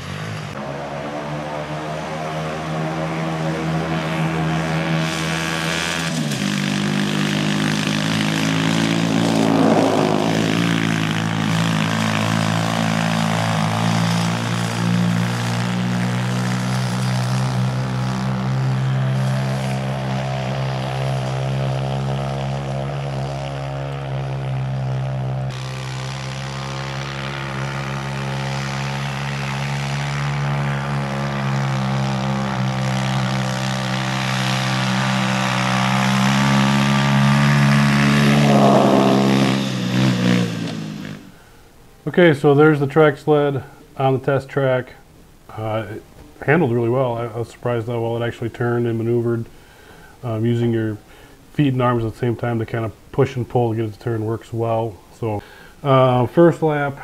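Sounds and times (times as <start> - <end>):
small engine running: 0.0 - 41.5.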